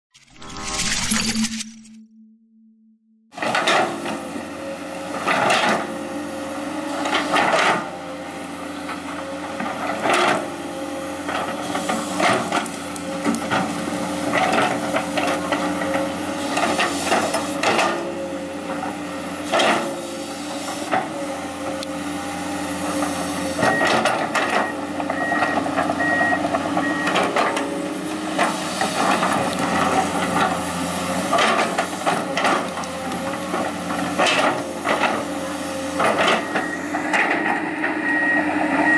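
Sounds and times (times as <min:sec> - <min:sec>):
short beeps: 0:00.1 - 0:03.3
excavator diesel engine running: 0:03.4 - 0:38.9.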